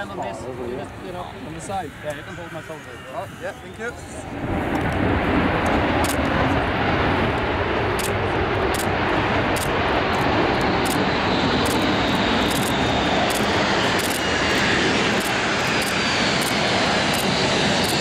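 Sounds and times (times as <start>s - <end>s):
jet engine running loud: 0.0s - 18.0s.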